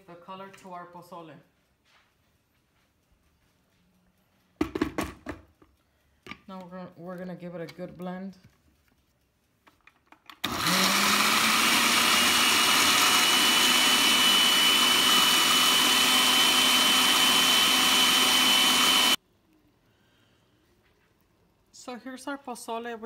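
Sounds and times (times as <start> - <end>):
blender motor whining: 10.4 - 19.2.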